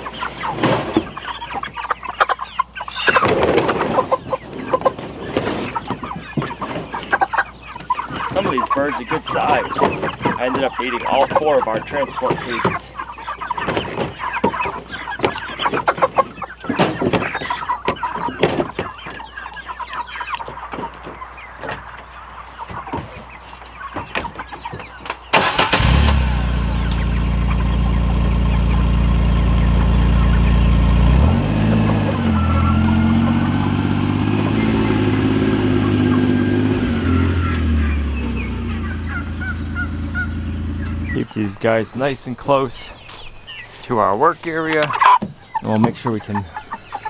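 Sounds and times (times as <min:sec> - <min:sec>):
chickens clucking: 0:00.0 - 0:47.0
crates knocking and clattering: 0:13.5 - 0:19.3
utility vehicle engine running: 0:25.3 - 0:41.2.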